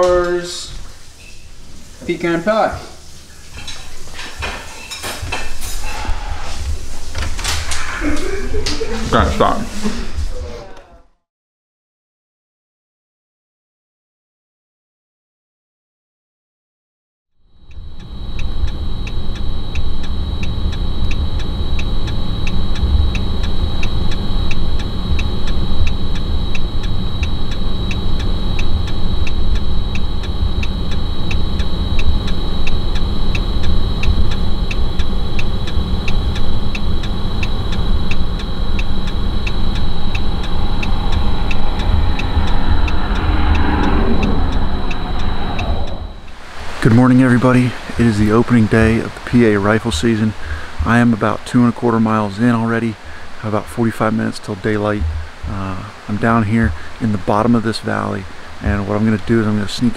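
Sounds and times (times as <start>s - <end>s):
steady high-pitched tone: 0.0s - 10.7s, 17.4s - 59.9s
even ticking: 17.5s - 59.9s
vehicle engine rumble: 17.6s - 59.9s.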